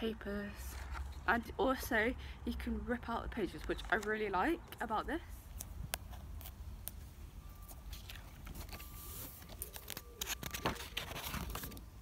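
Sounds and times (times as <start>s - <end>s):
notebook pages rustling: 7.6s - 12.0s.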